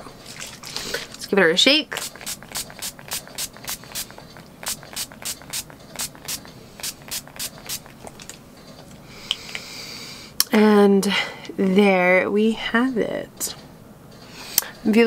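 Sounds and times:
spray bottle hissing: 1.9s - 8.0s.

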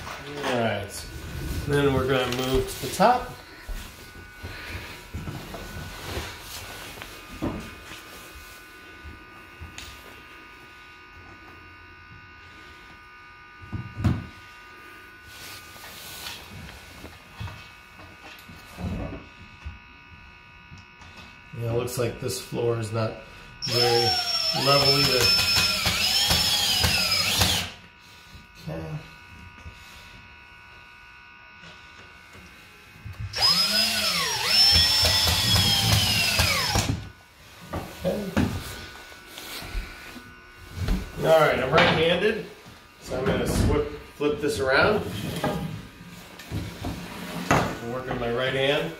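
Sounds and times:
high electrical whine: 0.0s - 48.9s.

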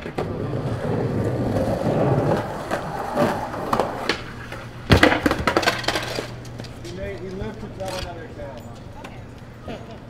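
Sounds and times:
skateboard wooden clacks: 0.0s - 6.7s
skateboard wheels rolling on concrete: 0.0s - 10.0s.

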